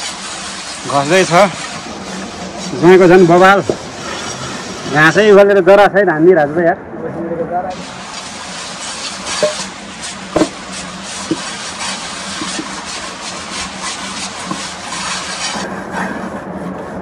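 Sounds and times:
grass scraping a cooking pot: 0.0 - 5.1, 7.7 - 15.8
sharp knock: 10.4 - 10.6.

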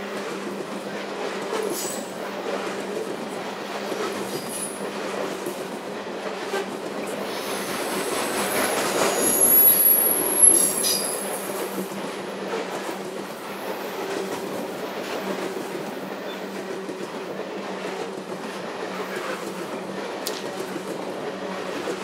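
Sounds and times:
freight train rumbling by: 0.0 - 22.0
wheel squeal: 9.1 - 11.2.

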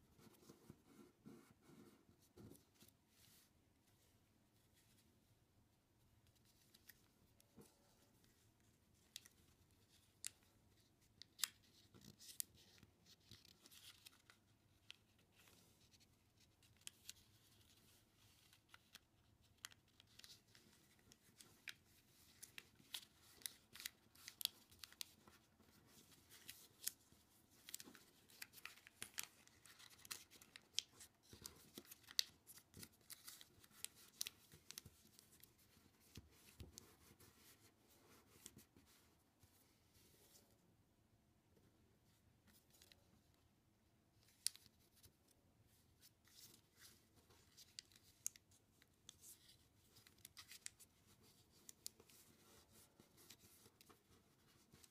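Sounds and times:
paper rustling and crackling: 11.3 - 37.6.

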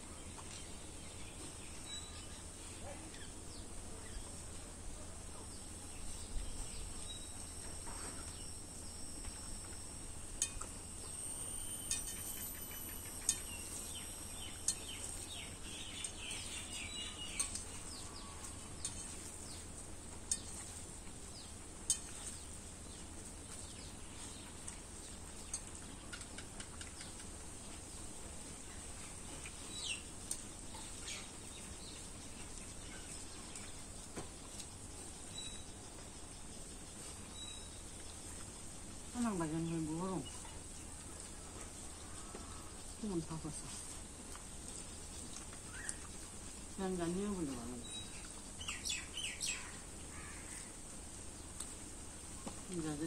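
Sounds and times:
small birds chirping: 0.0 - 9.4, 10.4 - 53.0
steady high-pitched whine: 3.6 - 15.7.

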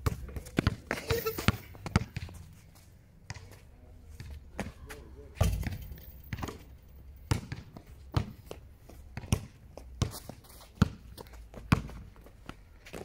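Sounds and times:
basketball bouncing on court: 0.0 - 2.3, 7.2 - 8.5, 9.2 - 10.1, 10.8 - 11.0, 11.6 - 12.0.

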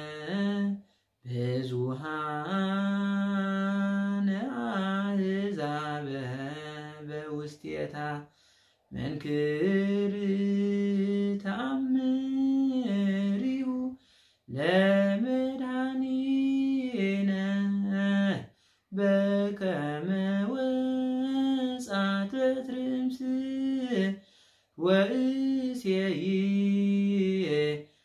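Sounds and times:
man singing a hymn unaccompanied: 0.0 - 28.0
man breathing: 0.8 - 1.2, 8.3 - 9.0, 14.0 - 14.5, 18.5 - 19.0, 24.2 - 24.8.

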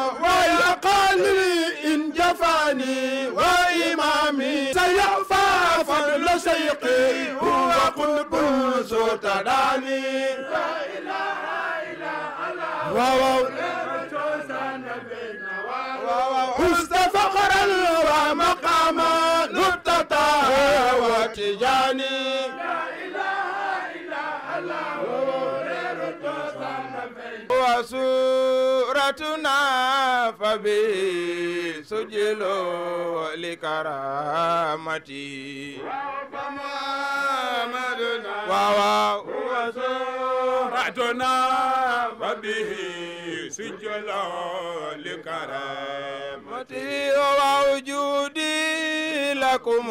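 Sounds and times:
person chanting: 0.0 - 11.3, 12.0 - 22.9.

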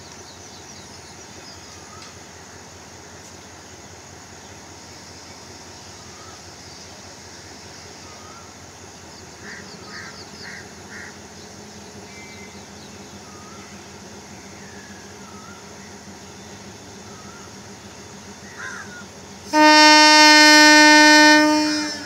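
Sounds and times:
diesel locomotive idling: 0.0 - 22.0
bird calling: 9.3 - 22.0.

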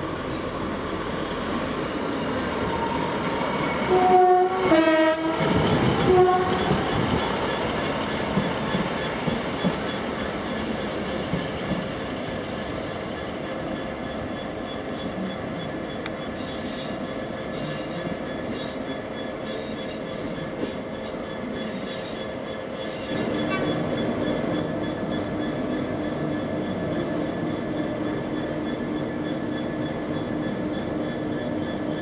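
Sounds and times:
diesel train engines running: 0.0 - 32.0
two-tone train horn: 3.8 - 6.7
wheel squeal: 12.4 - 32.0.

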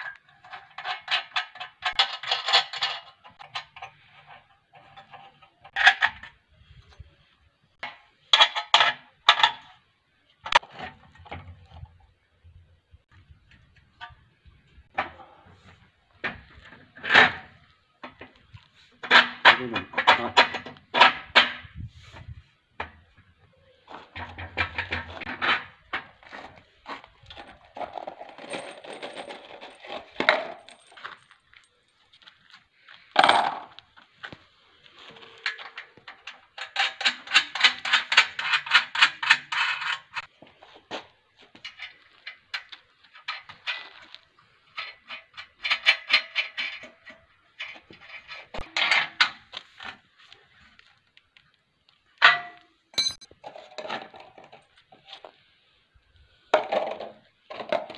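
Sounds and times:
metal bolts clinking and rattling: 0.0 - 6.4, 24.0 - 31.8, 35.5 - 40.3, 41.6 - 49.5, 52.2 - 54.0.

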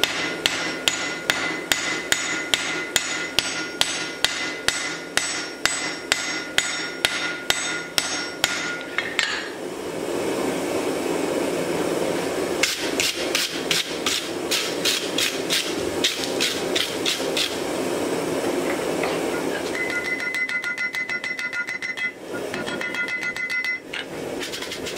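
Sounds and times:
hammer striking on anvil: 0.0 - 9.4, 19.7 - 24.0.

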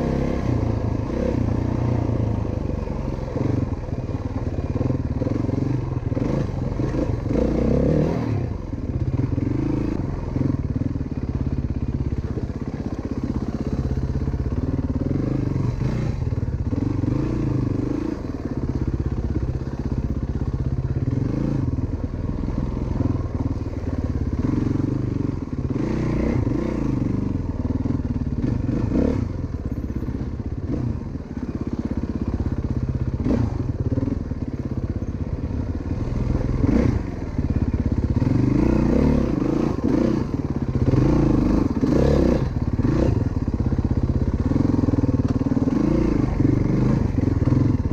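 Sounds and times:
dirt bike engine revving: 4.7 - 10.6, 33.2 - 34.2, 35.9 - 37.3, 38.1 - 43.5, 44.4 - 47.9.

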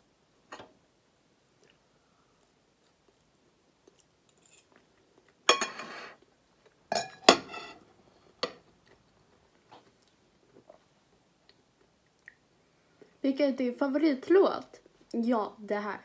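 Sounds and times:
cutlery clinking on plate: 5.5 - 6.1, 6.9 - 7.8.

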